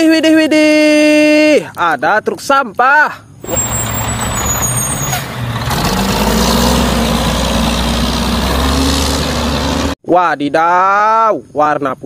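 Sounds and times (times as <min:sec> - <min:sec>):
garbage truck diesel engine running: 0:03.4 - 0:10.0.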